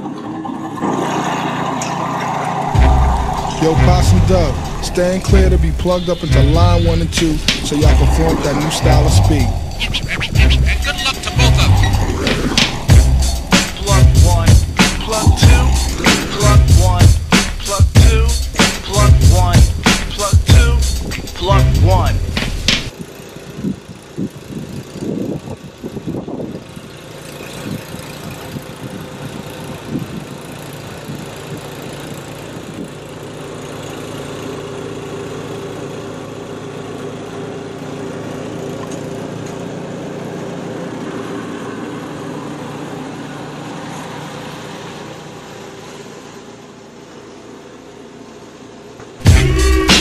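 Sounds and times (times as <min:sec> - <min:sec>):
snowblower engine running: 0:00.0 - 0:49.9.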